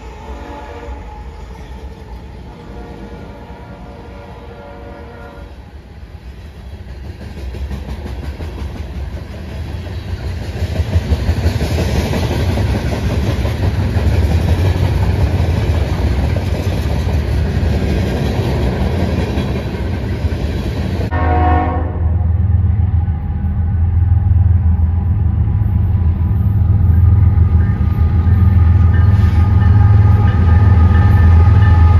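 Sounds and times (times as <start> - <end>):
locomotive air horn chord: 0.0 - 1.2, 2.5 - 5.6, 21.1 - 22.4
freight cars rolling on rails: 5.5 - 21.1.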